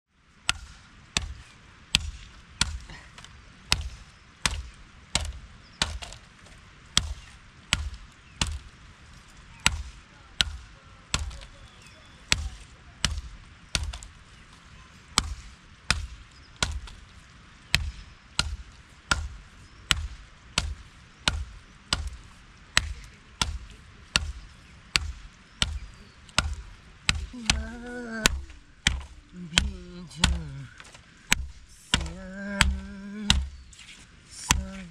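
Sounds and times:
tool striking hard surface: 26.4 - 33.6
person speaking: 27.2 - 33.7, 34.3 - 34.9.

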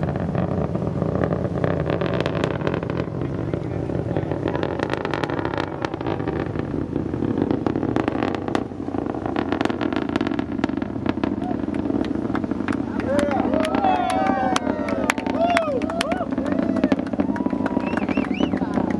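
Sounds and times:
distant rocket engine rumble: 0.0 - 18.9
sharp crackles: 0.0 - 18.9.

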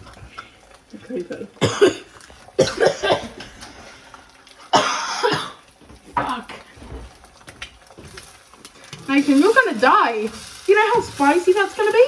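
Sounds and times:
person coughing: 1.6 - 3.4, 4.7 - 5.6.

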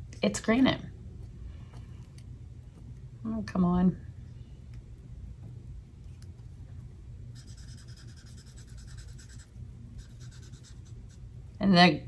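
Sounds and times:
marker scribbling on paper: 7.4 - 11.2.

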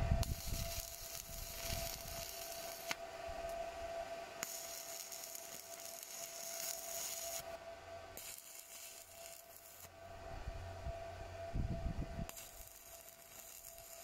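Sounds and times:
welding arc hiss: 0.0 - 3.0, 4.4 - 7.5, 8.2 - 10.0, 12.3 - 14.0.

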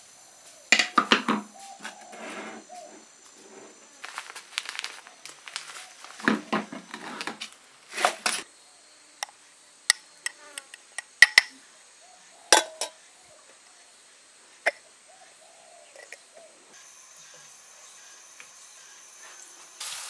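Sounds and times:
utensils scraping a bowl: 1.9 - 3.8
glass jar clicks: 11.2 - 11.5, 12.6 - 13.0.

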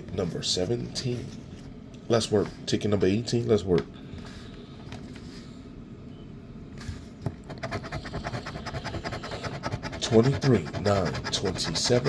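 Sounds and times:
coin scratching lottery ticket: 7.5 - 12.0.

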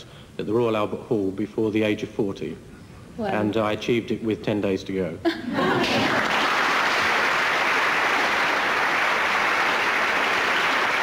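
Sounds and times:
audience applauding: 5.8 - 11.0.

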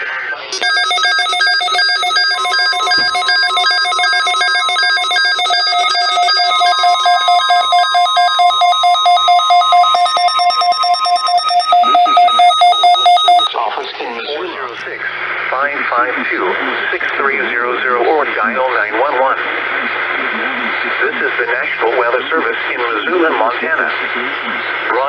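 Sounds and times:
weather radio alert beeping: 0.3 - 13.5
long steady tone: 0.6 - 13.5.

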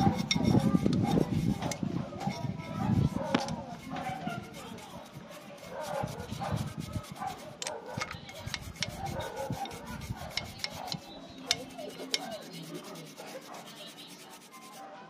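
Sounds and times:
brush knocking metal: 0.0 - 14.8
toothbrush scrubbing metal: 0.0 - 14.9.

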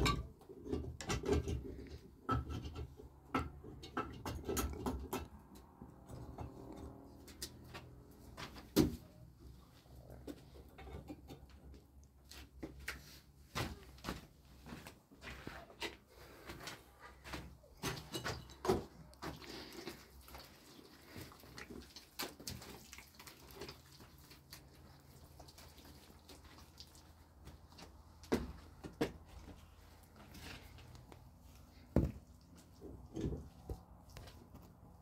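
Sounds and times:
knocks and clicks of hand work: 0.0 - 6.5.

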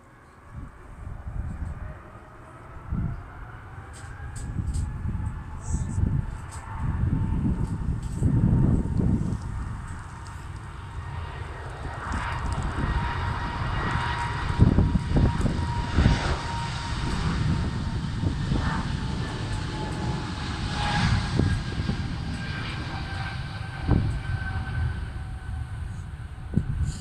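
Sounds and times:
distant jet engines whining: 0.0 - 27.0
wind rumbling on microphone: 0.0 - 27.0.

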